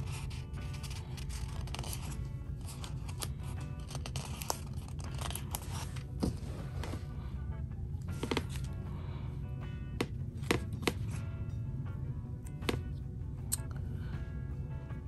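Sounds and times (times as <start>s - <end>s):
paper pages rustling: 0.0s - 7.0s, 8.2s - 8.7s
background music: 0.0s - 15.0s.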